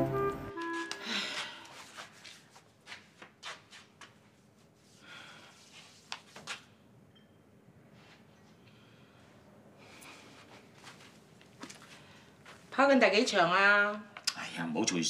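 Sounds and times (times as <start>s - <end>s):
short music cue: 0.0s - 1.1s
soft rustles: 0.6s - 6.7s, 9.9s - 12.8s
woman breathing and sighing: 1.0s - 1.9s.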